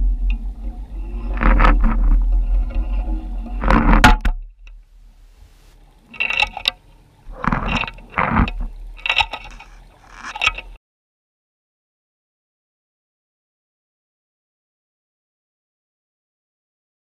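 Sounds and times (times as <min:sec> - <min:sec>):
low hum: 0:00.0 - 0:10.8
gear clinking on rocky seabed: 0:05.9 - 0:10.8.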